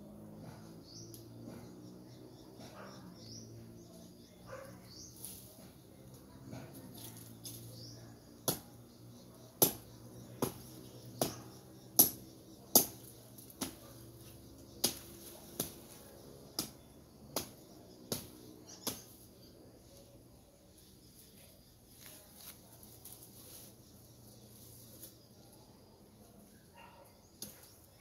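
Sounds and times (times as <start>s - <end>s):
machete chopping brush: 8.4s - 8.8s, 9.5s - 19.3s.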